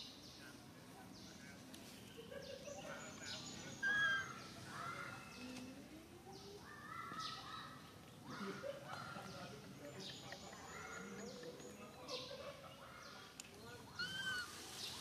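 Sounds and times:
faint outdoor background noise: 0.0s - 15.0s
short high animal calls: 13.9s - 14.7s.

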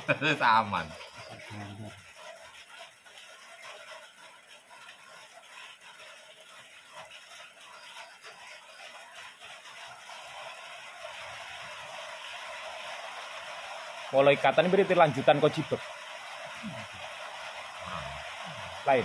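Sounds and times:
steady background hiss: 16.4s - 19.0s.

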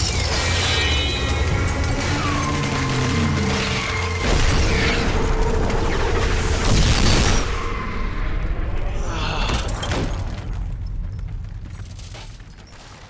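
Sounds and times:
music: 0.0s - 10.2s.

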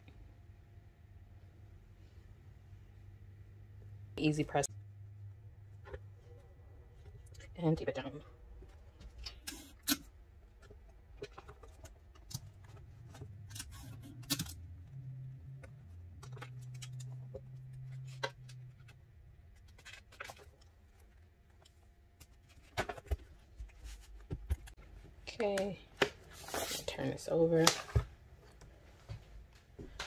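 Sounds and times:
faint low hum: 0.0s - 30.0s
paper rustling and clicks: 15.5s - 19.0s.

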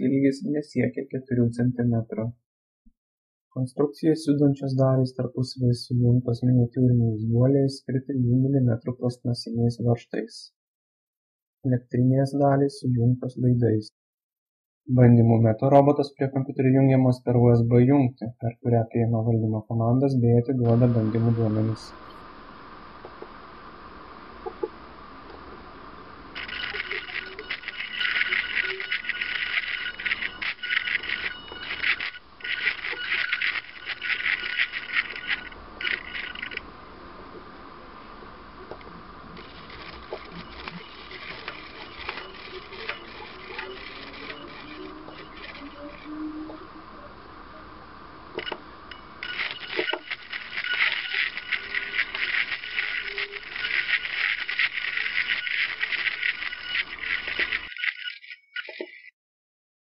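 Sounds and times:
fine rapid clicking: 26.4s - 36.6s, 39.4s - 46.1s, 49.2s - 59.1s
small motors whining through gears: 26.4s - 36.6s, 49.2s - 59.1s.

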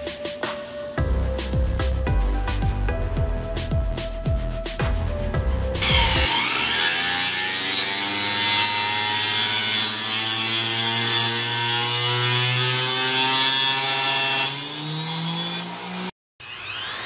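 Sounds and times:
saw blade rasping wood: 5.8s - 16.1s
table saw motor whine: 5.8s - 17.0s.

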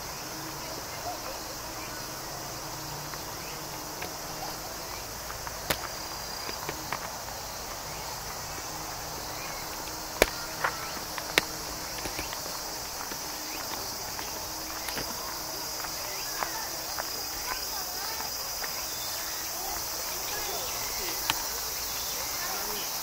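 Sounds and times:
insects chirring: 0.0s - 23.0s
sharp taps: 5.3s - 7.2s, 8.5s - 15.1s.

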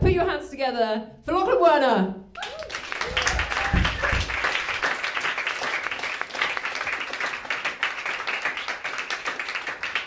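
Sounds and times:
audience applauding: 2.4s - 10.0s.

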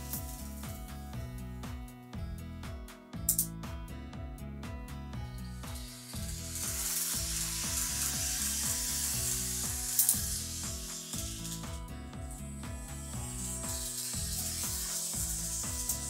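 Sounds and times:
background music: 0.0s - 16.0s
model trains rolling on track: 5.8s - 11.6s, 13.0s - 16.0s.

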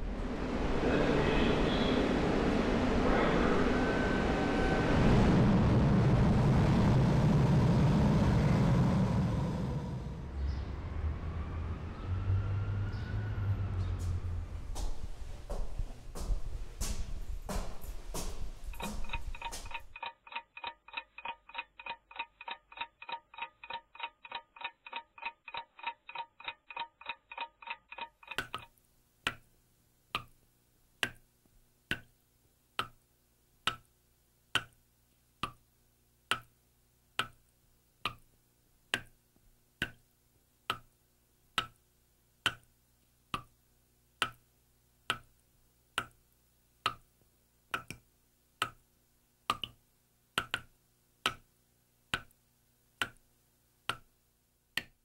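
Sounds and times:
rapid even ticking: 18.7s - 28.7s.

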